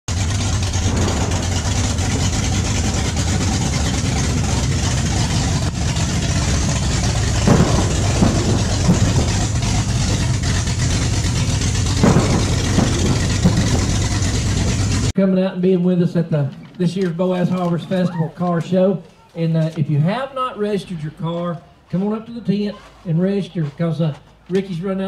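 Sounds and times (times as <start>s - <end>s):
truck engine idling: 0.0s - 15.2s
engine revving blips: 0.1s - 15.1s.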